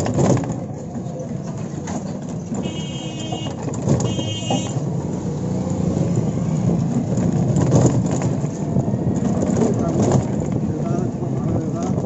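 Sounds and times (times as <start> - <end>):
road noise: 0.0 - 12.0
electronic horn beeps: 2.6 - 4.8.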